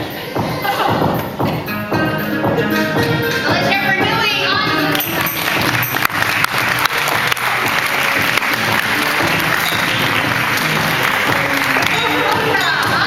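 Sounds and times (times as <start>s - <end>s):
music: 0.0s - 13.0s
audience applauding: 4.9s - 13.0s.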